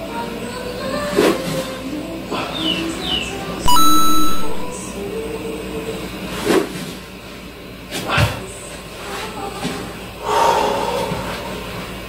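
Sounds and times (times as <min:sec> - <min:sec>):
loud electronic tone: 0:03.7 - 0:04.8.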